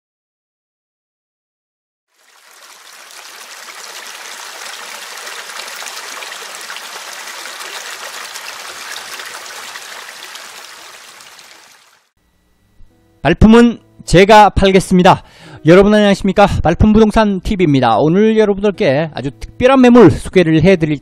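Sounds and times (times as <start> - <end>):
stream running over rocks: 2.1 - 12.1.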